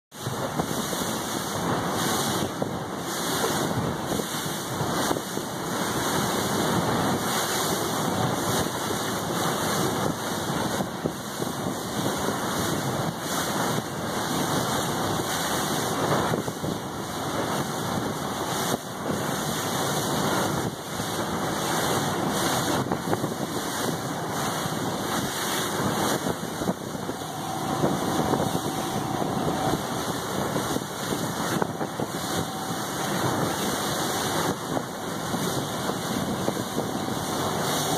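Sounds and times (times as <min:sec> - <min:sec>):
motorboat engine running: 0:00.1 - 0:37.9
water: 0:00.1 - 0:37.9
wind buffeting microphone: 0:00.1 - 0:37.9
faint steady whine: 0:23.2 - 0:37.9.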